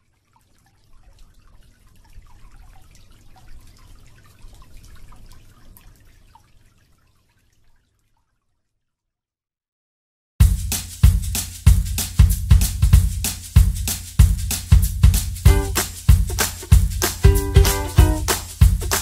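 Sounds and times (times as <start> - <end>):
water trickling and dripping: 0.0 - 9.1.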